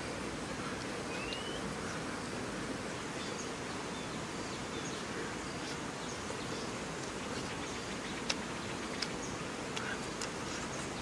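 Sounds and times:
outdoor background hiss: 0.0 - 11.0
faint high chirps: 1.0 - 1.8.

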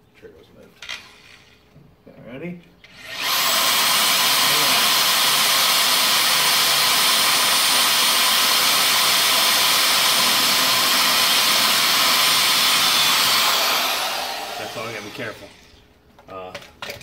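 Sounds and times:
electric drill boring through steel: 2.9 - 15.8.

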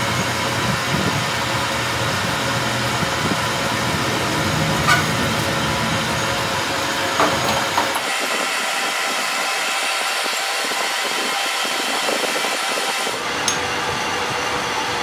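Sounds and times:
steady machine noise: 0.0 - 15.0.

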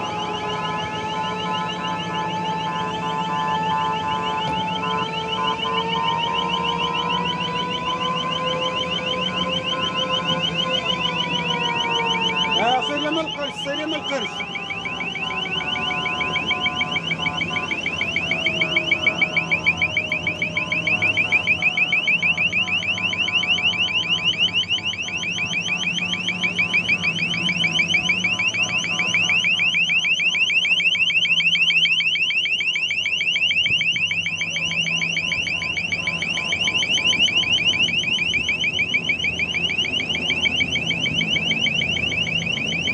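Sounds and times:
lower tone falling in pitch: 0.0 - 29.6
high warbling siren: 0.0 - 42.9.

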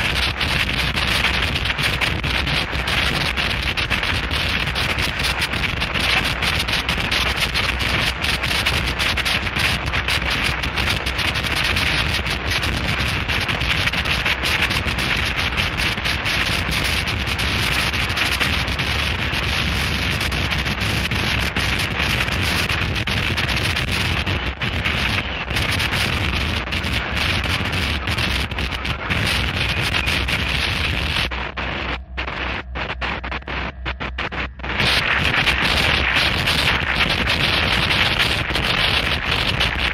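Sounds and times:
distorted static hissing and crackling: 0.0 - 39.9
heavy low rumble: 0.0 - 39.9.

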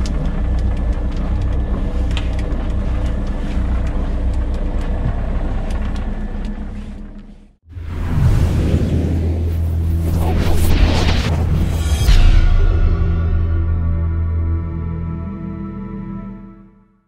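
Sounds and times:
boat engine idling: 0.0 - 7.2.

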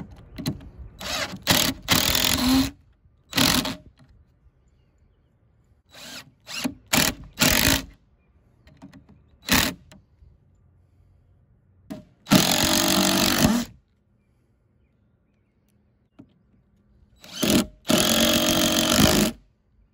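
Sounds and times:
cordless drill driving screws: 1.0 - 3.8, 5.9 - 8.0, 12.3 - 13.7, 17.2 - 19.4.

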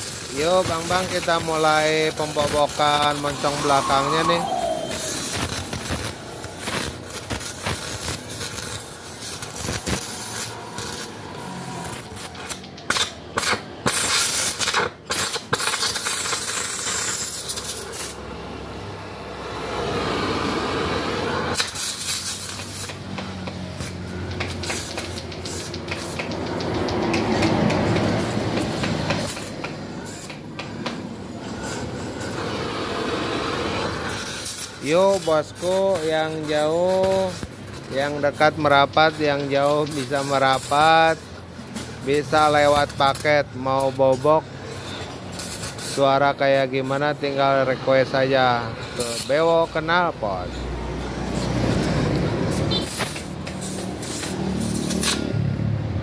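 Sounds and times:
metal being cut: 0.0 - 18.2.

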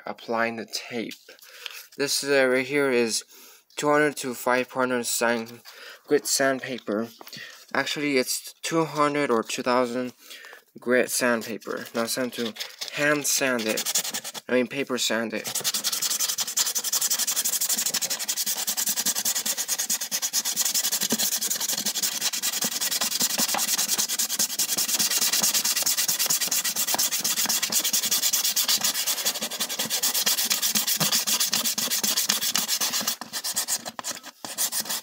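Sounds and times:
sandpaper rubbing on plywood: 12.3 - 14.5, 15.4 - 35.0.

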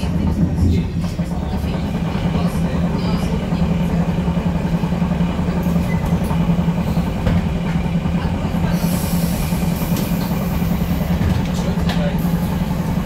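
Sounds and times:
low rumble: 0.0 - 5.4
trolleybus hum: 0.0 - 13.0
hiss: 8.7 - 11.0.

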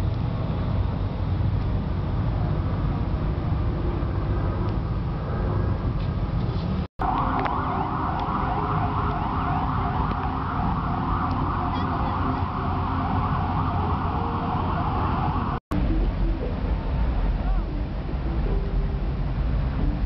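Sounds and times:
steady low rumble: 0.0 - 20.0
rapidly warbling siren-like tone: 7.0 - 16.8.

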